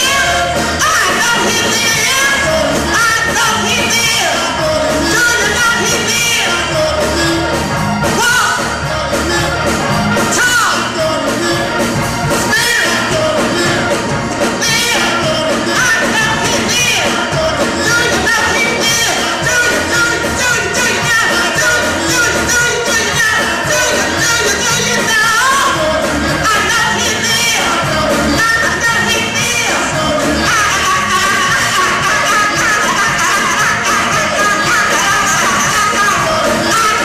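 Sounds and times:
woman singing into microphone: 0:00.0 - 0:07.0, 0:14.6 - 0:37.0
musical accompaniment: 0:00.0 - 0:37.0.

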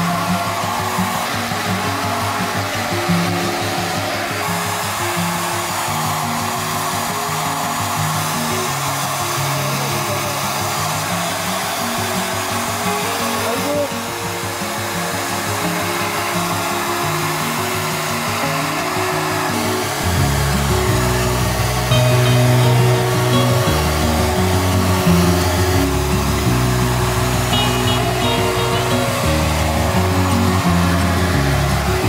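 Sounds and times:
hair dryer running: 0:00.0 - 0:32.0
background music: 0:12.8 - 0:32.0.

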